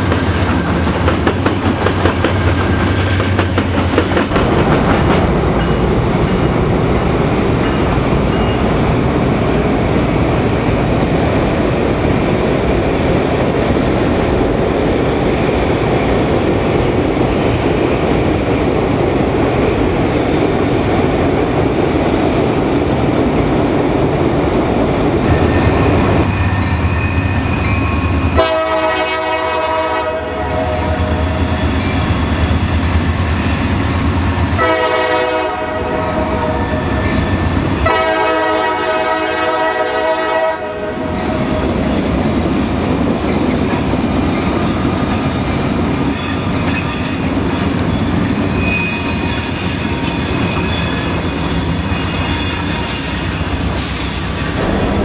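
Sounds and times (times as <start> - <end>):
wheels clacking on rails: 0.0 - 28.3, 41.0 - 55.0
locomotive engine rumble: 4.0 - 9.3, 25.1 - 26.5, 54.4 - 55.0
train horn blasts: 28.4 - 31.2, 34.6 - 36.6, 37.8 - 41.1.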